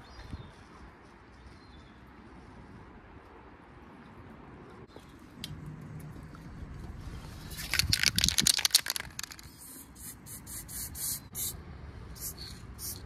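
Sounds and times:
spray can ball rattling: 0:07.5 - 0:11.2
spray paint hissing: 0:07.6 - 0:13.0.

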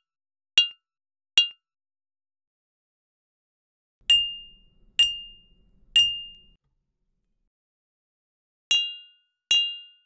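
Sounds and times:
mug struck ringing ding: 0:04.0 - 0:06.6
synthesized mug strike ding: 0:04.1 - 0:06.6.

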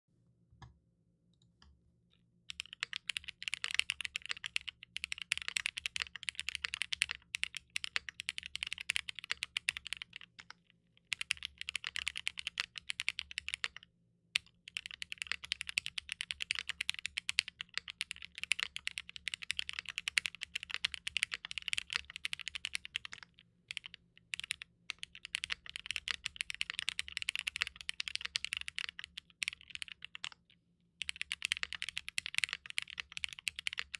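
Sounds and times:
rapid typing on mechanical keyboard: 0:02.5 - 0:13.8, 0:14.4 - 0:33.9.

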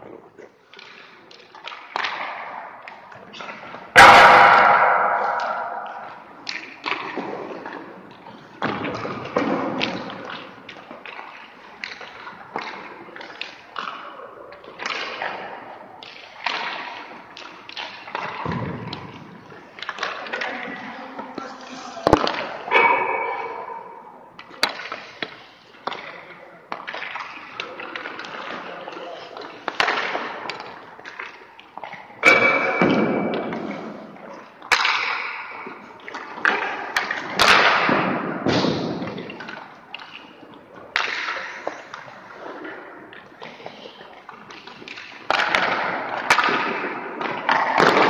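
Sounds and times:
hockey pucks and sticks knocking: 0:00.0 - 0:48.0
loud sharp crack: 0:04.0 - 0:06.2.

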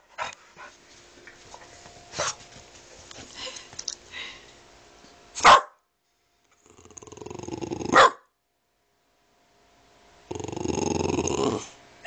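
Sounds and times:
dog barking: 0:05.4 - 0:05.8, 0:07.9 - 0:08.3
dog growling: 0:06.6 - 0:08.1, 0:10.3 - 0:11.8.

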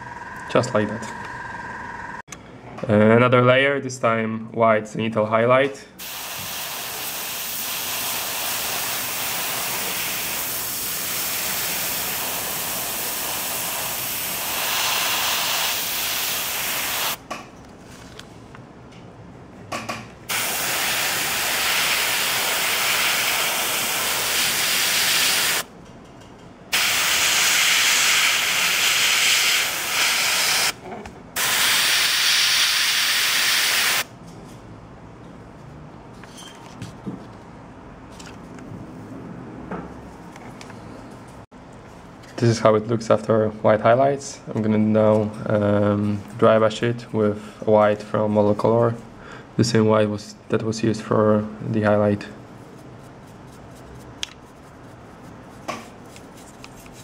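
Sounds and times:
airbrush spraying hiss: 0:06.0 - 0:17.2, 0:20.3 - 0:25.6, 0:26.7 - 0:30.8, 0:31.4 - 0:34.0.

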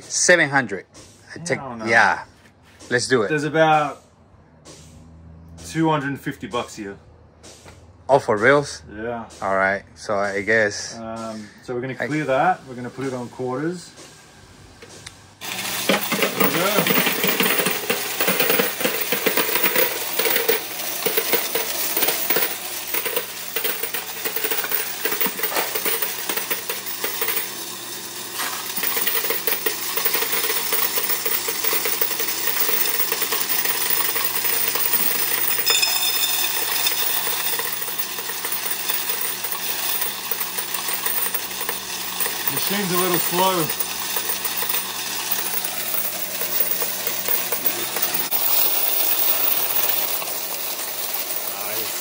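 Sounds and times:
coin counting machine clattering: 0:15.4 - 0:52.0.

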